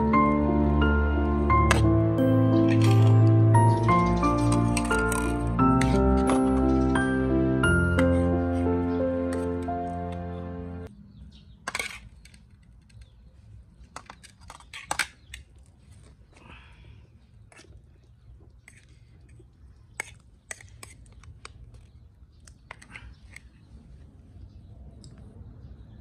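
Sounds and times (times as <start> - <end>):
background music: 0.0 - 10.9.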